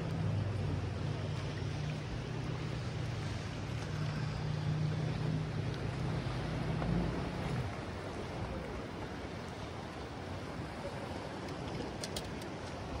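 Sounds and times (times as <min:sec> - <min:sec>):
boat motor humming: 0:00.0 - 0:13.0
rush of wind and water: 0:00.0 - 0:13.0
faint clicks: 0:11.4 - 0:12.8.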